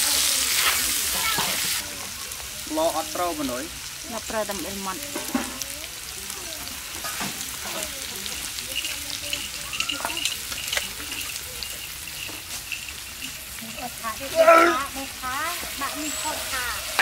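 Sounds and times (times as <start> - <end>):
food sizzling in a wok: 0.0 - 17.0
metal spoon scraping a wok: 6.9 - 17.0.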